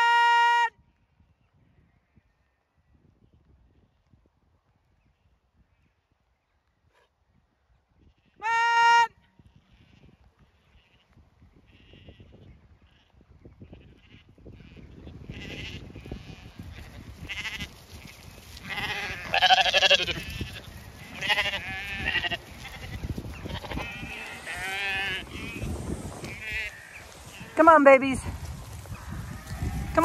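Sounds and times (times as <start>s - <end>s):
lambs bleating: 13.8s - 27.8s, 29.2s - 30.0s.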